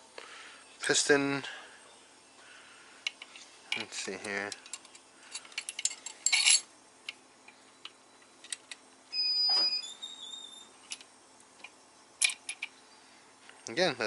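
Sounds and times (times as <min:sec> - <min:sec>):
metal clicks and clinks: 0:03.0 - 0:08.8, 0:10.8 - 0:12.7
metal clatter: 0:04.6 - 0:06.7
metal rubbing with squeak: 0:09.2 - 0:10.8.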